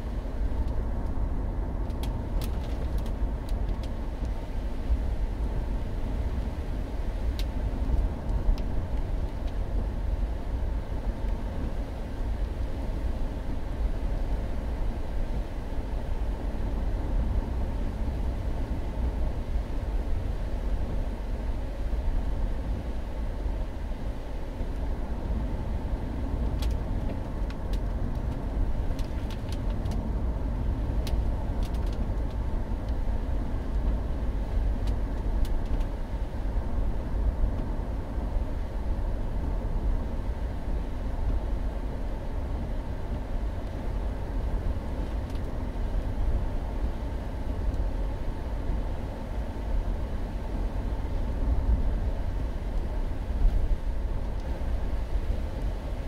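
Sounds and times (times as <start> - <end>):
car engine rumble: 0.0 - 56.0
light ticks: 0.6 - 1.2, 1.8 - 4.4, 7.3 - 9.6, 26.4 - 30.1, 31.0 - 33.0, 34.8 - 35.9.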